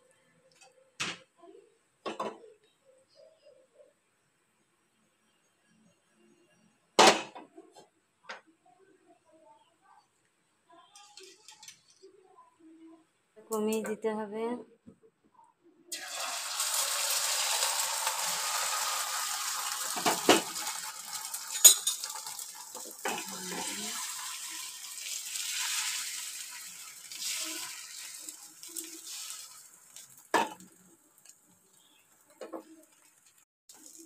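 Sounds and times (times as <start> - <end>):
eggs sizzling in frying pan: 15.9 - 34.0.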